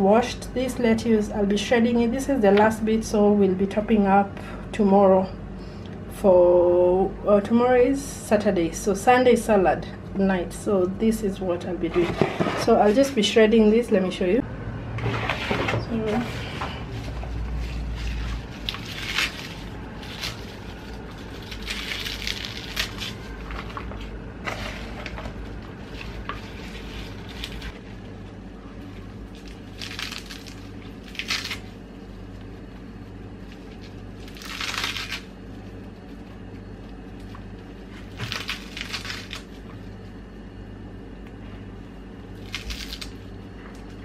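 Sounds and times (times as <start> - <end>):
low steady hum: 0.0 - 44.0
leaves tearing: 16.9 - 27.9, 28.8 - 32.8, 33.4 - 39.7, 42.4 - 43.2.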